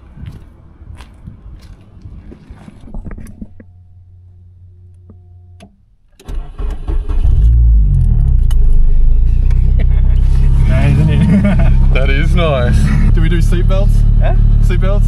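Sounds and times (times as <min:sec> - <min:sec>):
car engine starting and rumbling: 0:02.2 - 0:15.0.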